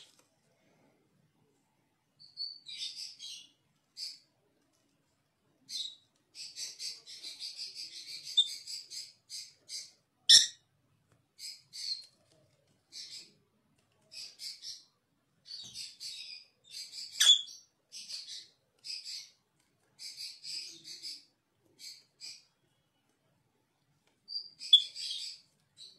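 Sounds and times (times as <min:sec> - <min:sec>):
parrots chirping: 0:05.7 - 0:10.6, 0:15.5 - 0:19.4.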